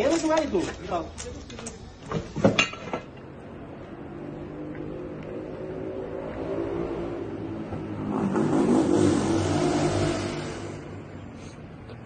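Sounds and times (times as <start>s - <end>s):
vehicle engine passing close: 3.2s - 11.4s.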